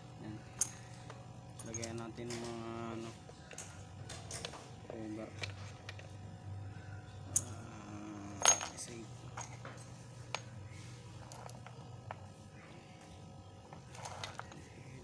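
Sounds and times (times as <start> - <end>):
small parts clinking on wood: 0.6 - 2.6, 5.2 - 6.1, 8.3 - 10.5, 11.2 - 12.2, 13.6 - 14.6.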